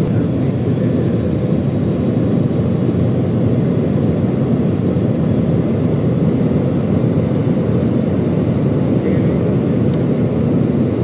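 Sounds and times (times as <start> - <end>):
airliner engines rumbling: 0.0 - 11.0.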